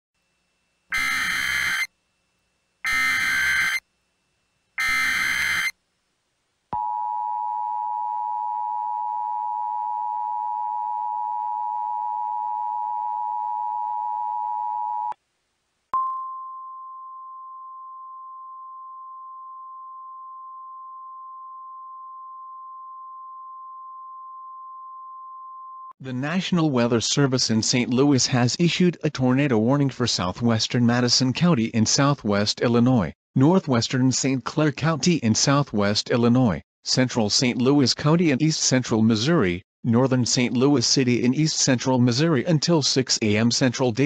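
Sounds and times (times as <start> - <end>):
screeching data bursts: 0.9 - 1.9, 2.8 - 3.8, 4.8 - 5.8
steady alert tone: 0.9 - 1.9, 2.9 - 3.8, 4.8 - 5.7
two-tone alert signal: 0.9 - 1.9, 2.9 - 3.8, 4.8 - 5.8.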